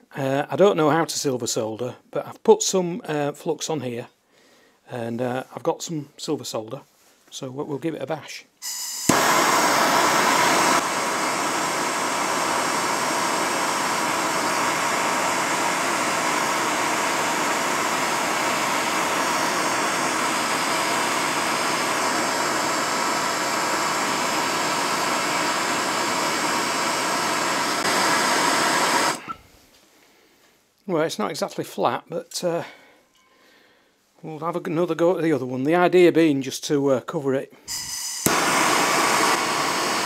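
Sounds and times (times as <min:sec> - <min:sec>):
gas torch hissing: 0:08.6 - 0:29.5, 0:37.7 - 0:40.0.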